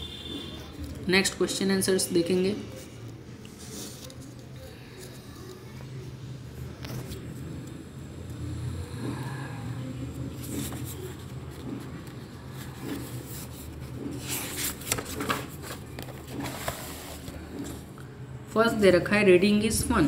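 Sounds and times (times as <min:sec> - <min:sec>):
paper page rustling: 0:03.5 - 0:05.9, 0:10.4 - 0:17.8.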